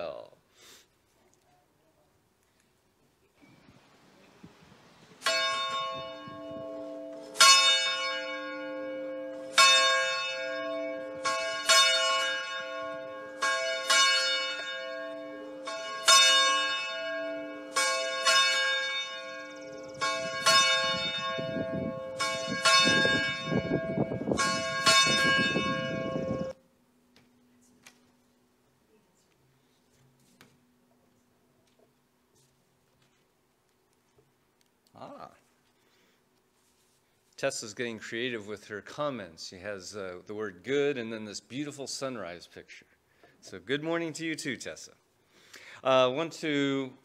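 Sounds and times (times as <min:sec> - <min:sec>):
church bell tolling: 0:05.2 - 0:26.6.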